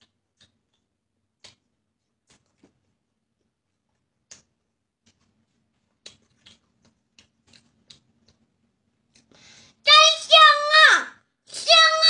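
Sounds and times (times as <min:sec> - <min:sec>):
faint eating clicks: 0:00.0 - 0:09.4.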